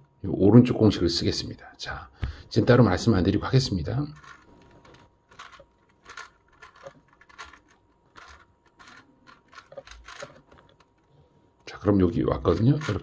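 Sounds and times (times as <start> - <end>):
puzzle cube clicking: 4.1 - 11.2, 12.4 - 13.0.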